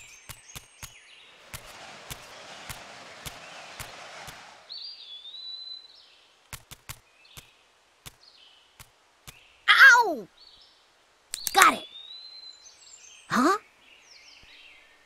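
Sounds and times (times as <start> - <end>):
whistled bird call: 1.5 - 6.0
sharp clicks: 6.4 - 8.2, 11.3 - 11.6.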